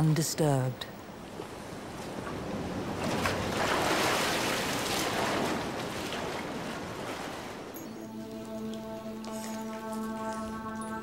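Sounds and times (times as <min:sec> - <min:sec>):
sea water surging in a cave: 0:01.1 - 0:11.0.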